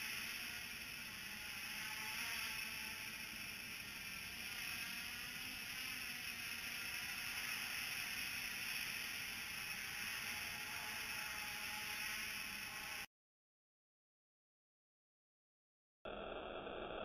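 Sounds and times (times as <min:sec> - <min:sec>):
drone propellers buzzing: 0:00.0 - 0:13.1.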